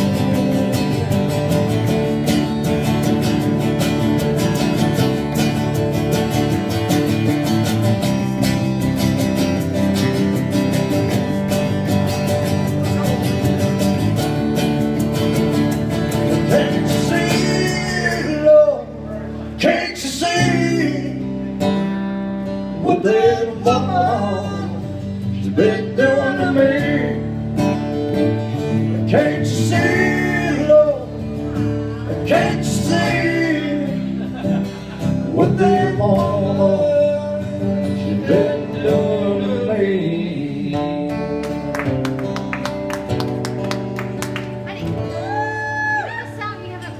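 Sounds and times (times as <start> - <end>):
man singing wordless lines: 0.0 - 1.4, 16.3 - 21.6, 22.6 - 27.5, 28.7 - 34.3, 35.2 - 41.7
country-rock band playing: 0.0 - 46.9.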